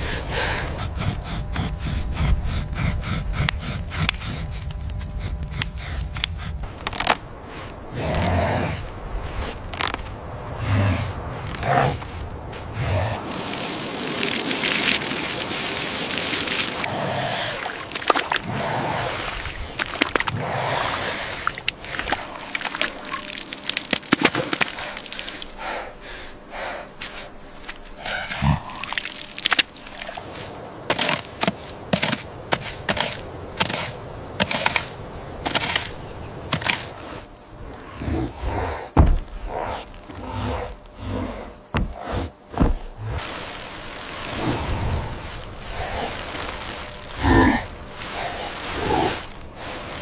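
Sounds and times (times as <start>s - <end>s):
wet mud squelching: 11.2s - 25.8s, 27.0s - 37.8s, 39.2s - 50.0s
wooden logs knocking and thudding: 39.0s - 39.4s, 41.6s - 43.4s.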